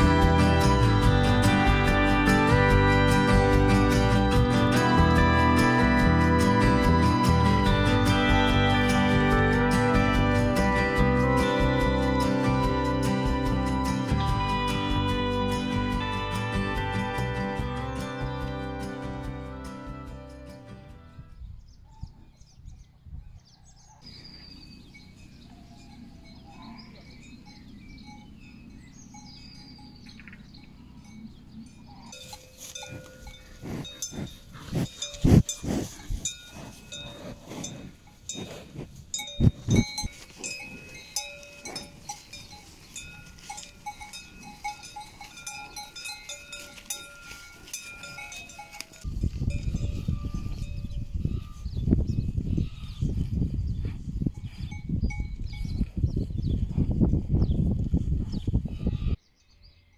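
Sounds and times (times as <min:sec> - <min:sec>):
cowbells clanking: 0:00.0 - 0:20.7, 0:24.6 - 0:53.1, 0:54.0 - 0:56.2
faint bird chirps: 0:21.4 - 0:32.4.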